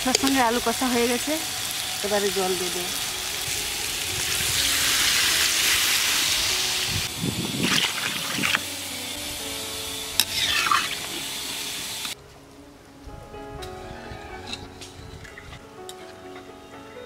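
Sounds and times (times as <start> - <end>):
water sizzling in hot pan: 0.0 - 12.2.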